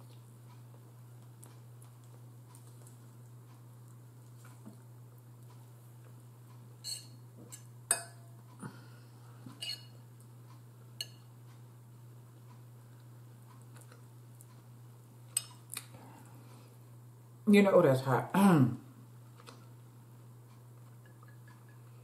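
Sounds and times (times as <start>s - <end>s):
steady low hum: 0.0s - 22.0s
fork clinking on ceramic bowl: 6.8s - 8.2s, 9.6s - 10.0s, 11.0s - 11.3s.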